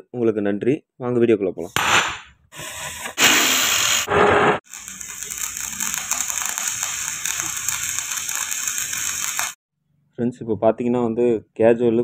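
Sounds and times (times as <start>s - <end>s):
angle grinder cutting steel: 2.6s - 9.6s
arc welder crackling: 3.2s - 9.6s.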